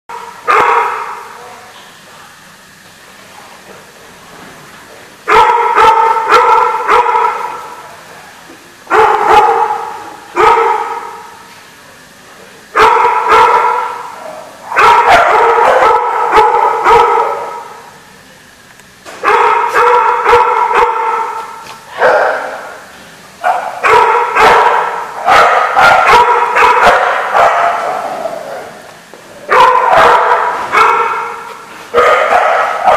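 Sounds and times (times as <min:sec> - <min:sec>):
dogs barking: 0:00.1 - 0:01.4, 0:05.3 - 0:07.8, 0:08.9 - 0:11.4, 0:12.7 - 0:17.8, 0:19.1 - 0:22.8, 0:23.4 - 0:28.8, 0:29.4 - 0:32.9.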